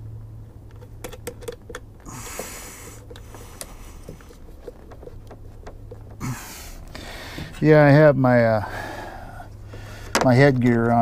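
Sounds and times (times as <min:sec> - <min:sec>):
hands working battery cables: 0:00.6 - 0:07.8, 0:09.5 - 0:11.0
scraping rustle: 0:02.0 - 0:08.0.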